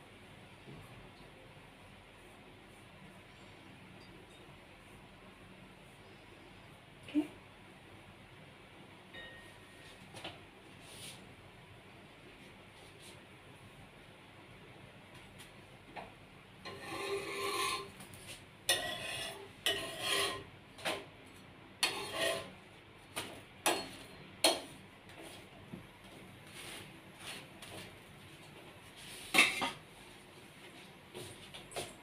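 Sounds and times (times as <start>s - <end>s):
metal spatula scraping griddle: 16.7s - 18.0s, 18.7s - 20.5s, 21.8s - 22.5s.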